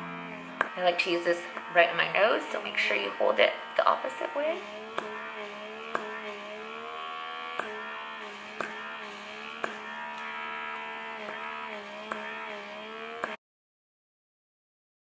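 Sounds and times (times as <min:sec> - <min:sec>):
small electric motor buzzing: 0:00.0 - 0:13.4
sharp clicks: 0:04.9 - 0:06.3, 0:07.4 - 0:12.5.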